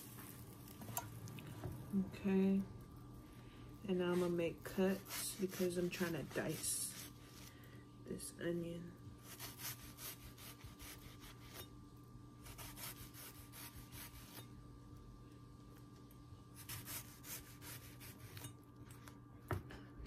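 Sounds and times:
knife cutting onion on wooden board: 4.9 - 7.2, 9.2 - 11.7, 12.4 - 14.5, 16.6 - 18.5.

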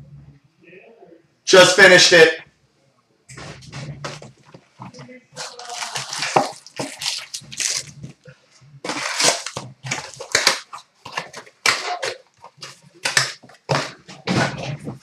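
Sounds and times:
card packs crinkling: 3.6 - 15.0.

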